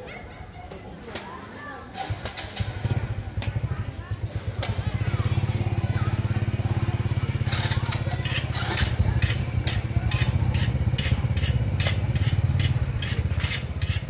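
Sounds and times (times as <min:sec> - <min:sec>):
motorcycle engine running: 0:02.1 - 0:14.0
knife scraping bamboo shoot: 0:07.4 - 0:14.0.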